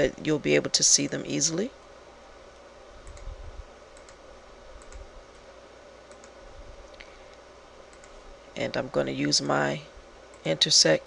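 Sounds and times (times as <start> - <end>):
faint background noise: 0.0 - 11.0
computer mouse clicks: 3.0 - 3.3, 4.0 - 4.2, 4.8 - 5.5, 6.1 - 6.4, 7.9 - 8.2.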